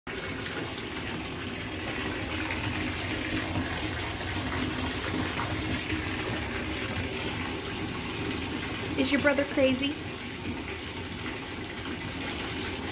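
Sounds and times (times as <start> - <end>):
water pouring into bathtub: 0.1 - 12.9.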